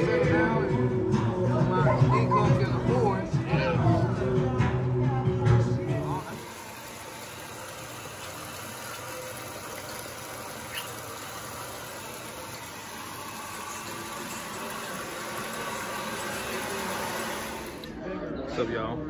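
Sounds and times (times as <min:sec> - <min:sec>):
tap water pouring into bathtub: 0:06.1 - 0:18.0.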